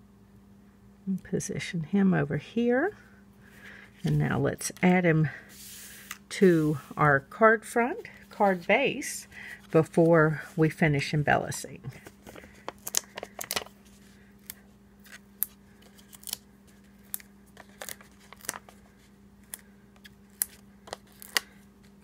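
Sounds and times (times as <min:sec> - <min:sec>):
faint steady hum: 0:00.0 - 0:22.0
paper clicks and crinkles: 0:11.9 - 0:22.0.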